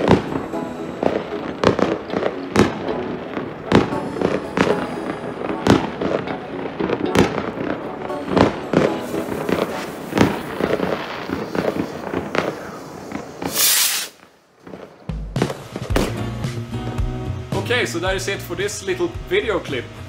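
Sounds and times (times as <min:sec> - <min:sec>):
music: 0:00.0 - 0:13.2, 0:14.8 - 0:20.0
fireworks bangs and crackles: 0:00.0 - 0:20.0
firework hiss: 0:08.3 - 0:14.4.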